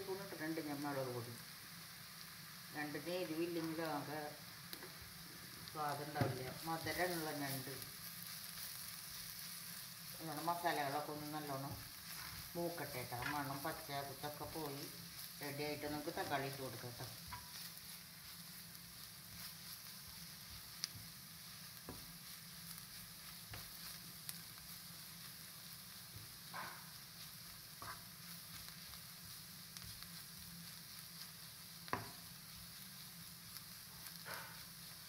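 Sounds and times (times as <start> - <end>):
masala sizzling in a pan: 0.0 - 35.0
spatula scraping and knocking pan: 10.8 - 13.8, 17.2 - 18.4, 19.0 - 24.4, 27.6 - 29.0, 31.8 - 32.8.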